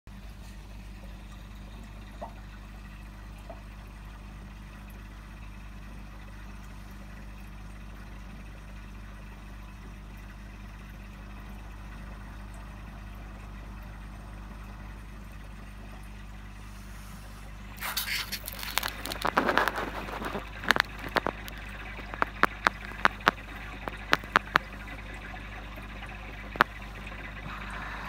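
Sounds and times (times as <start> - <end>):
aquarium filter hum and hiss: 0.1 - 28.0.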